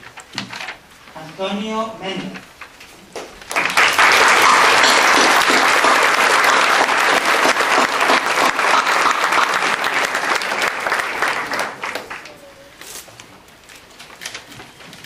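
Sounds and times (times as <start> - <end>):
audience applauding: 3.5 - 12.4.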